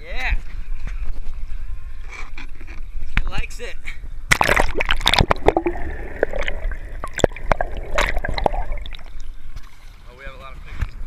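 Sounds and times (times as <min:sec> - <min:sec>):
seawater splashing and gurgling: 0:04.3 - 0:10.0.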